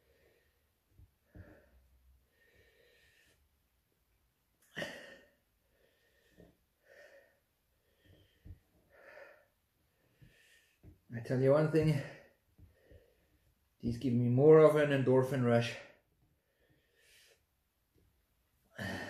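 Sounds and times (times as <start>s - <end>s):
man breathing heavily: 0.0s - 3.7s, 4.6s - 11.1s, 11.8s - 13.6s, 15.8s - 17.5s, 18.7s - 19.0s.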